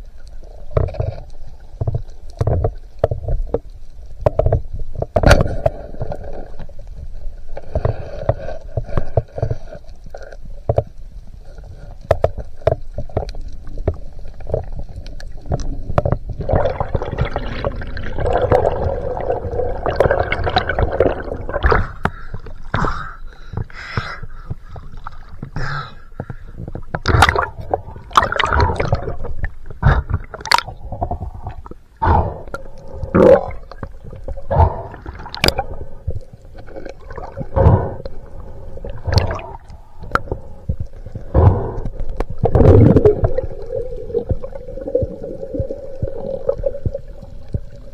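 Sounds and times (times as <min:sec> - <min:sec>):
water gurgling and sloshing: 0:00.0 - 0:47.9
splashes and knocks: 0:26.8 - 0:31.7.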